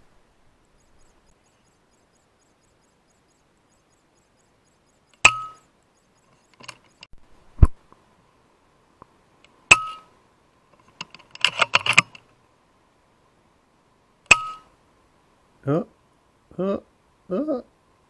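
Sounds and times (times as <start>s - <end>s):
metallic clicks and clinks: 6.2s - 7.1s, 10.8s - 12.3s.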